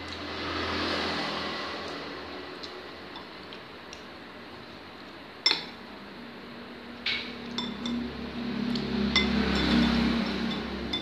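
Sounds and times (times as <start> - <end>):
spoon clinking on ceramic bowl: 5.4 - 5.8, 7.4 - 8.1, 9.1 - 11.0.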